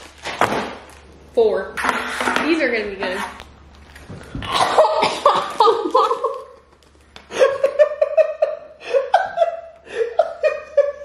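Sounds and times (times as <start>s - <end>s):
woman laughing: 4.8s - 6.7s, 7.3s - 11.0s.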